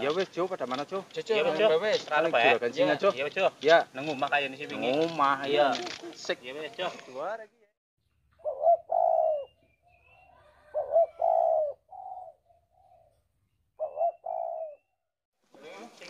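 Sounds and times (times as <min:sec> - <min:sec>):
faint high bird chirps: 0:08.0 - 0:15.1
dove cooing: 0:08.4 - 0:14.9.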